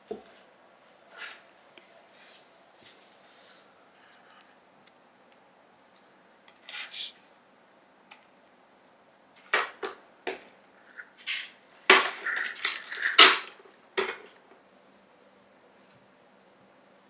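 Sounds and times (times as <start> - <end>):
brush scraping on hard floor: 2.1 - 4.4.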